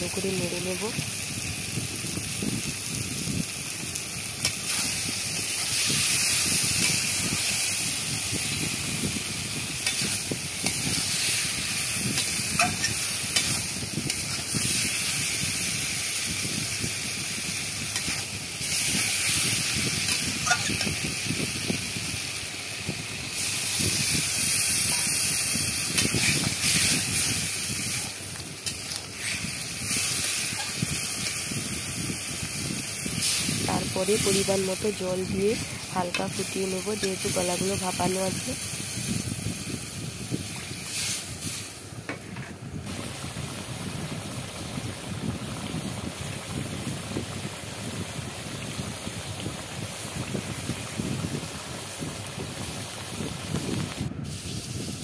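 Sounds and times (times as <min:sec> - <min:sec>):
curry sizzling in metal pan: 0:00.0 - 0:55.0
metal spatula scraping pan: 0:20.1 - 0:20.9.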